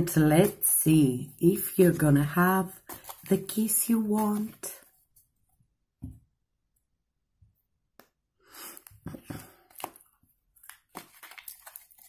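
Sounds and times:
cards rustling and tapping: 2.7s - 5.0s, 9.1s - 12.0s.

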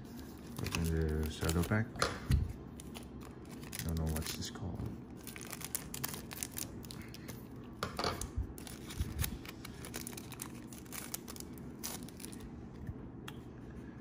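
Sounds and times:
trading cards rustling and clicking: 0.2s - 1.9s, 2.8s - 7.4s, 8.6s - 12.4s.

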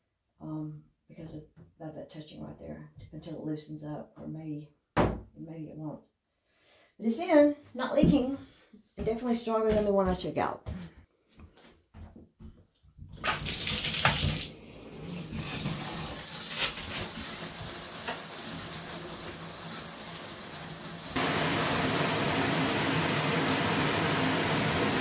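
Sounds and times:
shower head water spraying: 13.3s - 25.0s.

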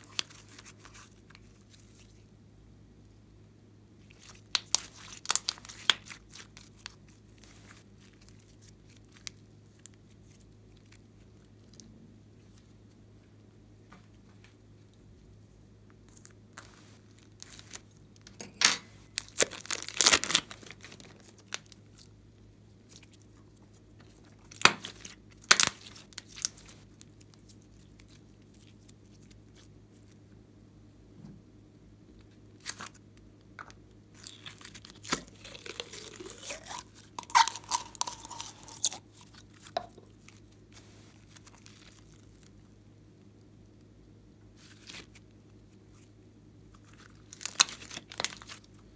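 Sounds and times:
slime crackling and popping: 4.1s - 11.8s, 19.2s - 22.1s, 24.0s - 29.7s, 34.1s - 42.5s, 46.8s - 48.8s.

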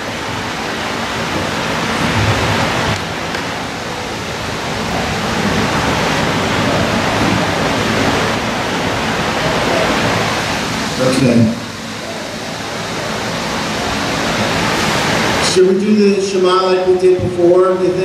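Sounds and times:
loud rushing room noise: 0.0s - 18.0s.

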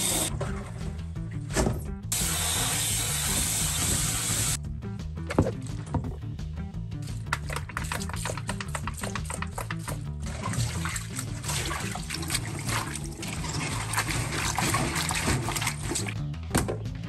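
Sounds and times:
background music: 0.0s - 17.0s
tap water splashing into steel bowl: 7.3s - 13.0s
hands swishing onions in water: 7.6s - 16.2s.

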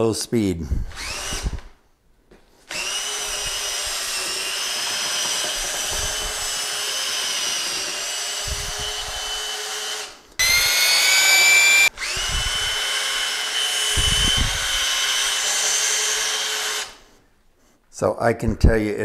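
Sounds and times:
louder drill motor whine: 0.9s - 1.6s, 2.7s - 17.0s
drill motor whining under load: 0.9s - 1.8s, 2.7s - 17.1s.

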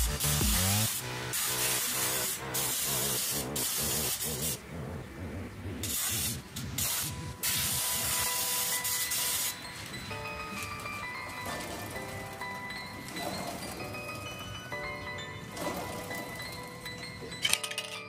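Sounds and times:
aerosol spray hiss: 0.2s - 4.6s, 5.8s - 9.6s.

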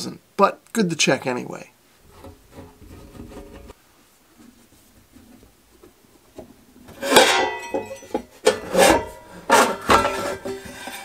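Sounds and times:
sheet metal cover clattering: 2.1s - 3.8s, 6.9s - 11.0s.

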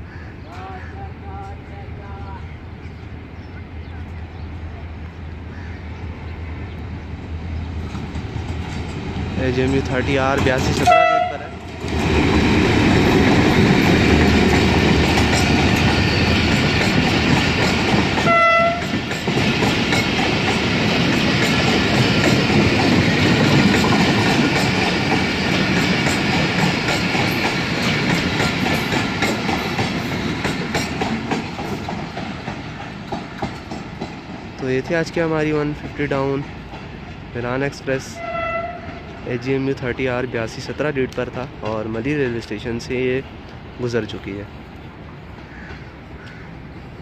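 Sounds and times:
diesel locomotive passing: 0.0s - 47.0s
train coaches rattling over rails: 0.5s - 47.0s
train horn toot: 10.8s - 11.6s, 18.2s - 19.0s, 38.1s - 39.1s.

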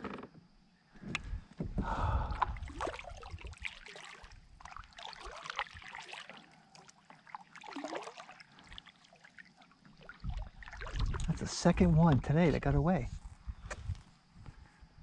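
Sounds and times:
paddle pulling through water: 1.1s - 12.7s
water gurgle: 1.8s - 12.8s
water trickling off paddle: 1.9s - 12.6s.

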